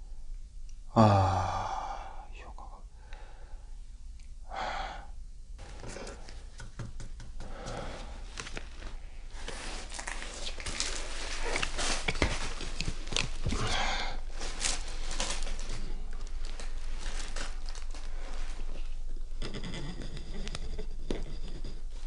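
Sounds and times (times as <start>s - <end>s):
person exhaling: 0.9s - 2.3s, 4.4s - 6.3s, 7.4s - 8.3s, 13.5s - 14.4s.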